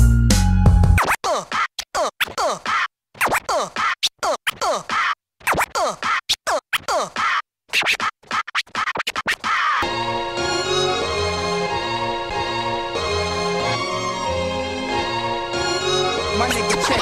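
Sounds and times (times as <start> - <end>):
turntable scratching: 1.0 - 9.8.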